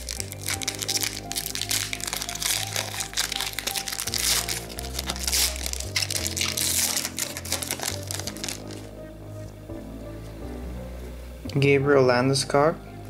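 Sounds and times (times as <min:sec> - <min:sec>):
foil wrapper crinkling: 0:00.0 - 0:08.9
background music with bass line: 0:00.0 - 0:13.0.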